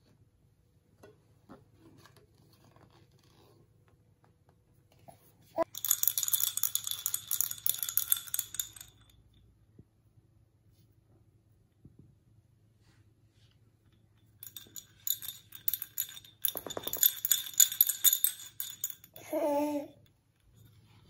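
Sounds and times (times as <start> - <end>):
small ornament rattling and jingling: 5.6 - 9.5, 14.0 - 21.0.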